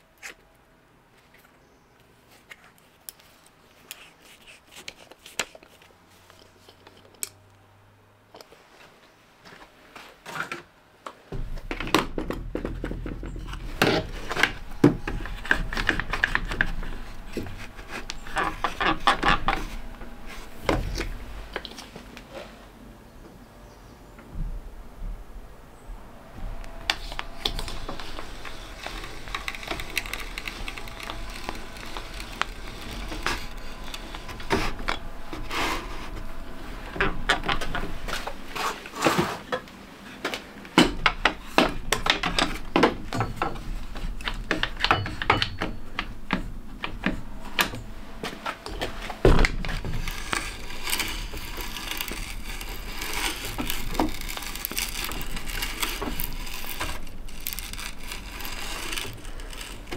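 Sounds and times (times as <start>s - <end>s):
drill bit boring into wood: 27.4s - 35.5s, 50.0s - 59.9s.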